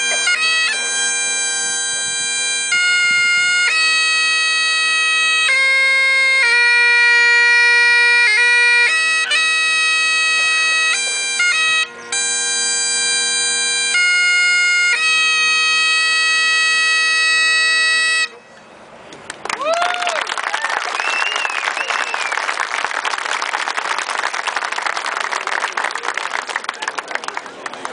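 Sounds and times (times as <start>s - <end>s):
bagpipes playing: 0.0s - 18.4s.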